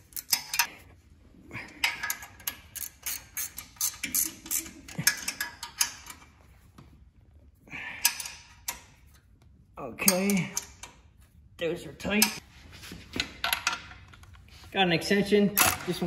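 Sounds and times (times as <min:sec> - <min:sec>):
ratchet wrench clicking: 0:02.0 - 0:06.2.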